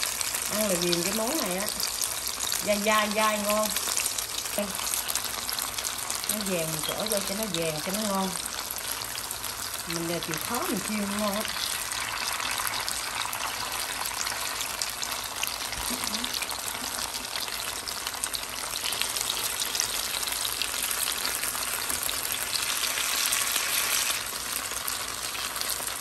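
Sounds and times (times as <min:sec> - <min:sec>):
food sizzling in oil: 0:00.0 - 0:26.0.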